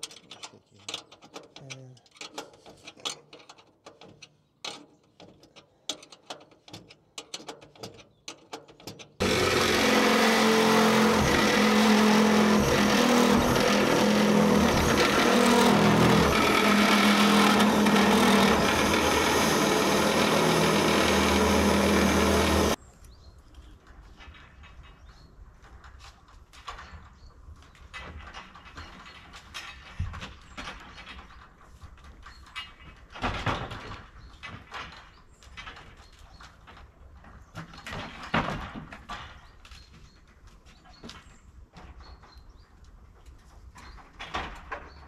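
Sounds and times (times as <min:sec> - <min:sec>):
cordless drill boring through steel: 0:09.2 - 0:22.8.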